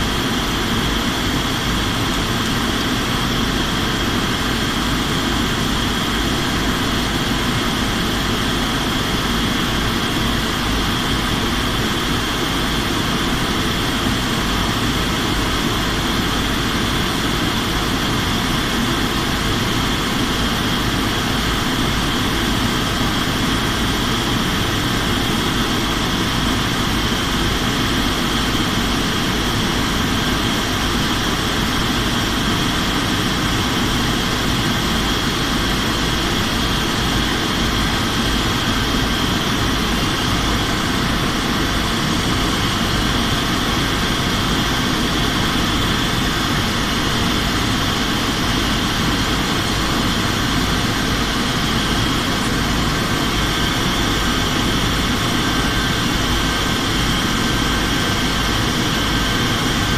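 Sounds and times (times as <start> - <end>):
airliner engines droning: 0.0 - 59.9
rushing air: 0.0 - 59.9.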